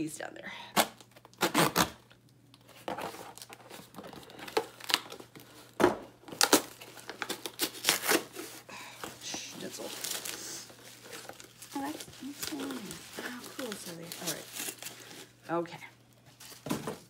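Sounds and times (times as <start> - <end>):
packaging crinkling and rustling: 1.0 - 17.0.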